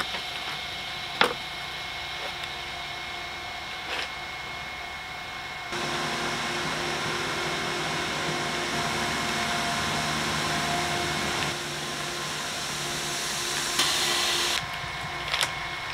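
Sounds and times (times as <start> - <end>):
motor drone with tones: 5.7 - 15.9.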